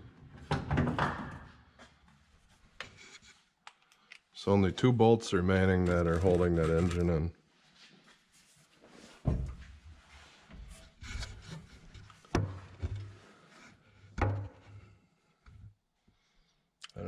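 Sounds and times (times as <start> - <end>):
rubbing and scuffing: 5.7 - 13.8.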